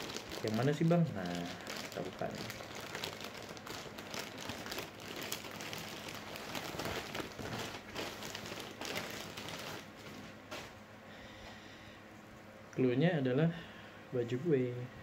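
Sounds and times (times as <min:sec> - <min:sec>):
plastic packaging crinkling: 0:00.0 - 0:10.8.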